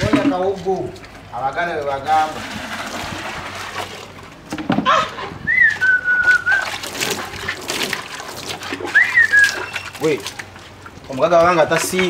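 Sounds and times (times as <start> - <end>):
person whistling: 5.5 - 6.7, 8.9 - 9.8.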